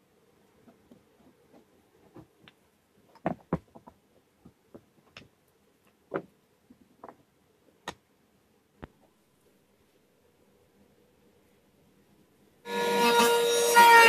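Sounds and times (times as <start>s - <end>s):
wooden blocks knocking on wood: 3.2s - 5.2s.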